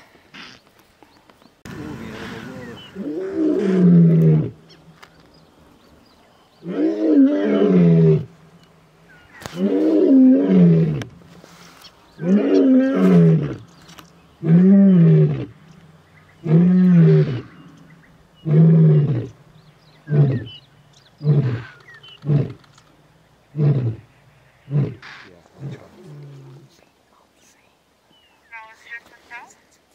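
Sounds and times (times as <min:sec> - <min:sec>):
lion roaring: 0:01.7 - 0:04.6, 0:06.6 - 0:08.3, 0:09.6 - 0:11.1, 0:12.2 - 0:13.7, 0:14.4 - 0:15.6, 0:18.4 - 0:19.4, 0:24.7 - 0:26.7
lion grunting: 0:01.7 - 0:04.7, 0:23.5 - 0:26.8.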